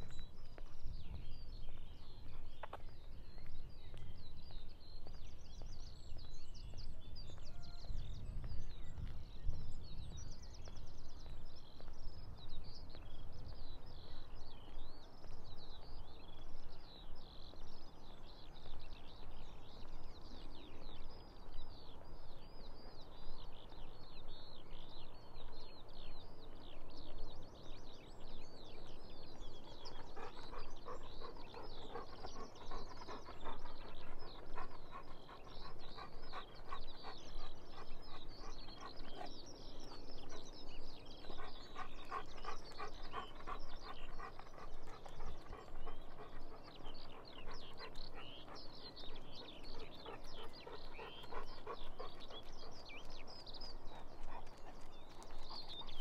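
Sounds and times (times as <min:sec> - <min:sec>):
songbird song: 0:00.0 - 0:56.0
dog panting: 0:29.3 - 0:56.0.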